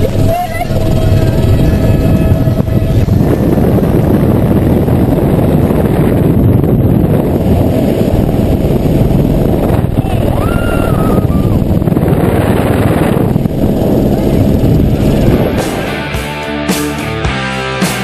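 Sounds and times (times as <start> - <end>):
wavering tone: 0.0 - 4.6
wind rushing over microphone: 0.0 - 16.7.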